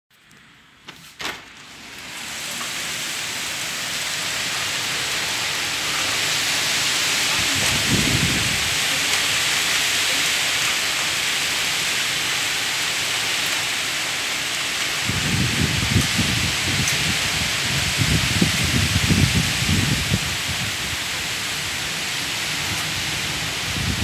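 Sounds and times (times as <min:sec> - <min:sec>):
torrential rain: 0:00.2 - 0:24.0
low thunder rumble: 0:02.5 - 0:09.6.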